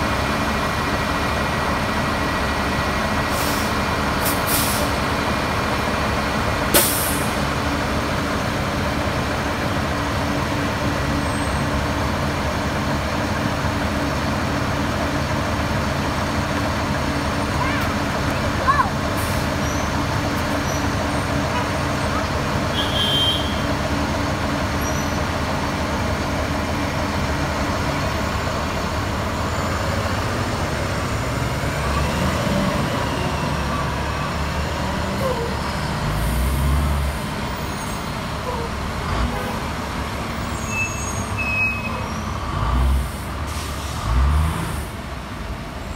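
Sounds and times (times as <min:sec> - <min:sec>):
bus engine: 0:00.0 - 0:45.9
street traffic: 0:00.0 - 0:45.9.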